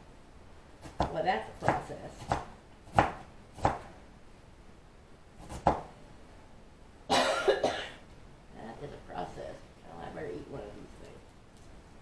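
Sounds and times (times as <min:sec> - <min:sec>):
knife chopping cabbage: 0:00.8 - 0:03.9, 0:05.4 - 0:05.9.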